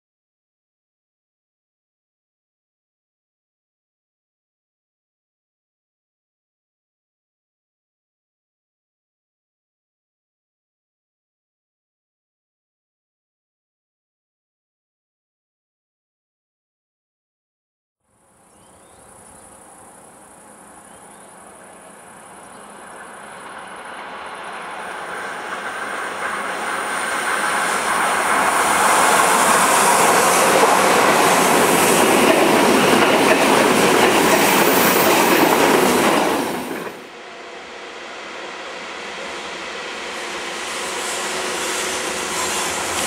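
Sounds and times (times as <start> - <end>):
rumble of another train: 18.1 - 43.0
train wheels rushing on rail: 18.2 - 43.0
wheels clickety-clack: 22.2 - 37.1
high wheel squeal: 40.8 - 43.0.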